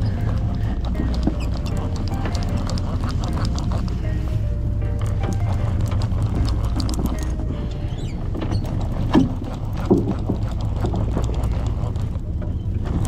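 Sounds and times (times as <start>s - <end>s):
fishing reel cranking: 0.0s - 4.3s, 4.9s - 12.3s
boat engine humming: 0.0s - 13.0s.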